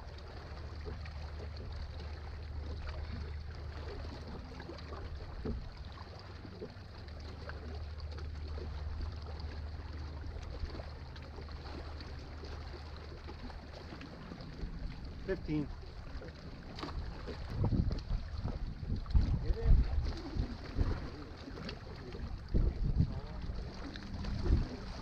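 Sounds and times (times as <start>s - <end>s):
lake water around a boat: 0.0s - 25.0s
wind: 0.0s - 25.0s.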